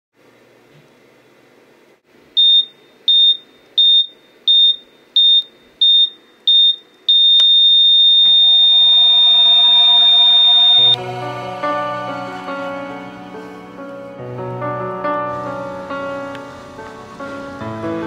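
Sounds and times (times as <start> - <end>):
high electronic beeps: 2.4 - 11.0
long electronic beep: 2.4 - 11.0
soft music: 9.1 - 18.0.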